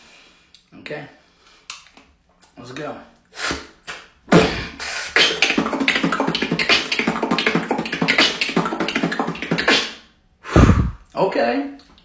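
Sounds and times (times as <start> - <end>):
person beatboxing: 3.4 - 11.0.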